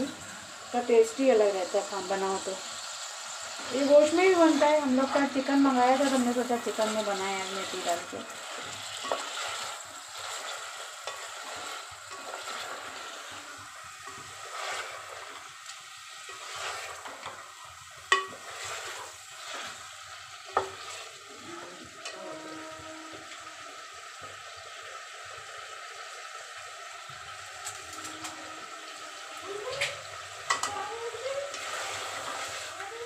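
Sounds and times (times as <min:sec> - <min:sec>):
chicken sizzling in a pot: 0:00.0 - 0:33.0
metal ladle scraping a pot: 0:14.1 - 0:15.4, 0:16.3 - 0:17.4.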